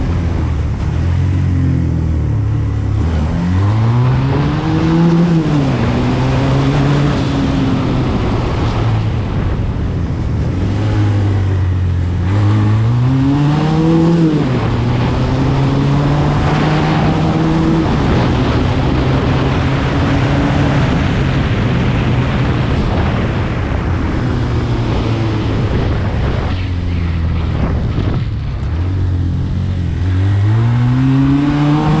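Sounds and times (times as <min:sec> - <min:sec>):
quad bike engine revving: 0:00.0 - 0:08.4, 0:10.4 - 0:23.2, 0:27.7 - 0:32.0.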